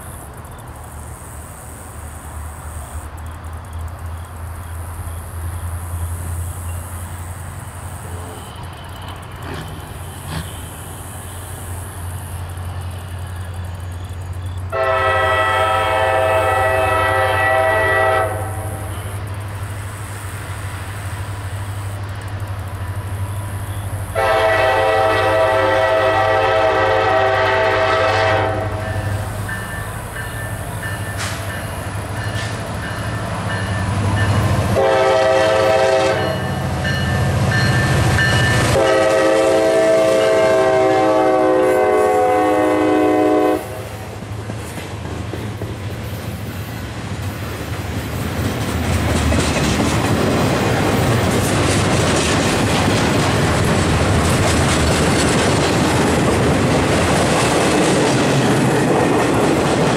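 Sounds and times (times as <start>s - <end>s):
diesel locomotive rumble: 0.0s - 59.9s
locomotive air horn chord: 14.7s - 19.1s, 24.1s - 29.2s, 34.7s - 36.6s, 38.7s - 43.9s.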